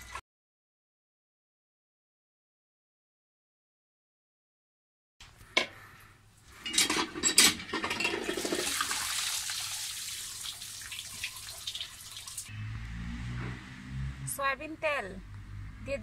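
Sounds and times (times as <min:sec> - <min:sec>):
water pouring and splashing: 0:07.6 - 0:12.5.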